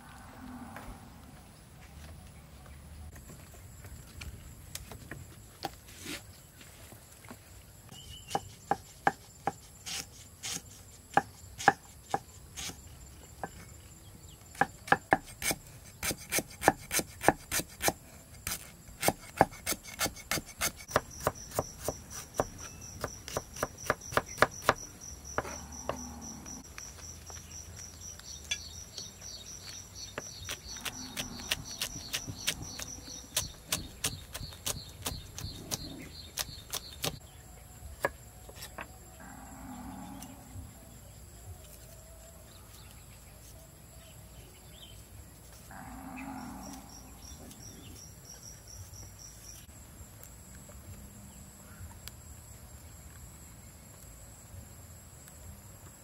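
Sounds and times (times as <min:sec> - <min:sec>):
insects chirring: 0:07.3 - 0:56.0
knife chopping on wooden block: 0:14.6 - 0:26.0.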